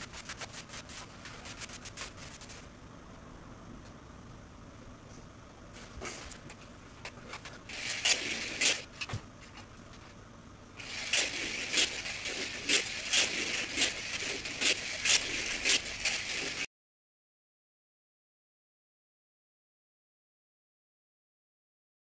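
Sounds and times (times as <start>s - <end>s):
slot car motor whirring: 7.7s - 9.1s, 10.8s - 16.7s.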